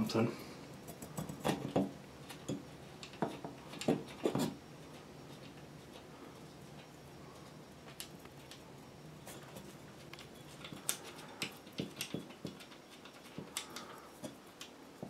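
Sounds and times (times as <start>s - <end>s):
small clicks and scrapes: 0.8s - 15.0s.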